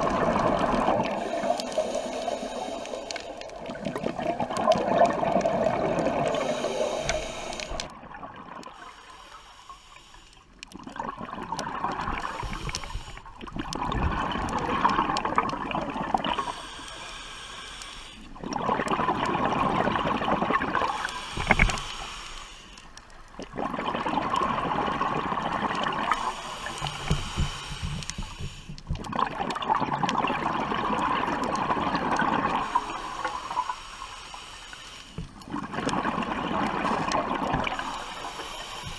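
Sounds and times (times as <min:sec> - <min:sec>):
diver breathing through regulator: 0:01.0 - 0:03.6, 0:05.9 - 0:07.9, 0:08.7 - 0:10.6, 0:12.2 - 0:13.4, 0:16.2 - 0:18.4, 0:20.8 - 0:23.0, 0:26.0 - 0:28.9, 0:32.6 - 0:35.4, 0:37.6 - 0:38.9.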